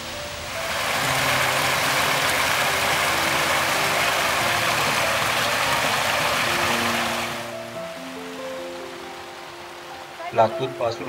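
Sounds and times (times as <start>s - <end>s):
faint background music: 0.0s - 11.0s
stream rushing over rocks: 0.0s - 11.0s.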